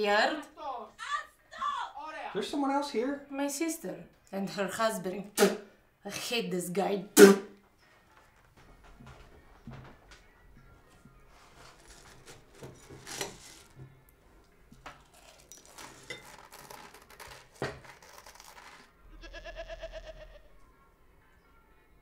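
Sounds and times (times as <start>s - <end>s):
wavering bleating call: 19.0s - 20.6s.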